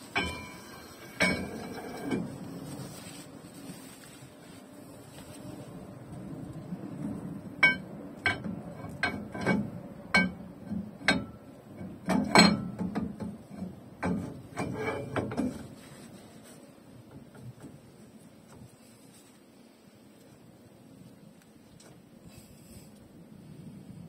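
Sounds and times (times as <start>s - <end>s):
metallic clinks and clanks: 0.1s - 2.4s.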